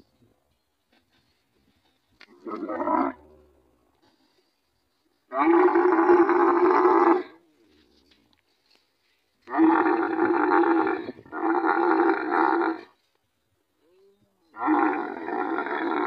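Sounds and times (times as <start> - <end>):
camel roaring: 2.3 - 3.5, 5.3 - 7.4, 9.5 - 12.9, 14.6 - 16.0.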